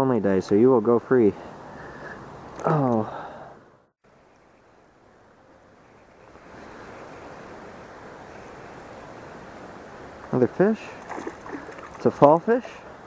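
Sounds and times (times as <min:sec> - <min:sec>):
river water: 0:05.8 - 0:13.0.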